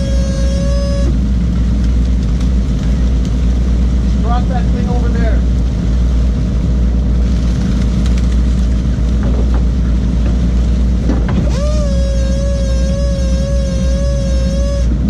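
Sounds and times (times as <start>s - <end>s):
boat engine running: 0.0s - 15.0s
high-pitched whine: 0.0s - 15.0s
water wash: 0.0s - 15.0s.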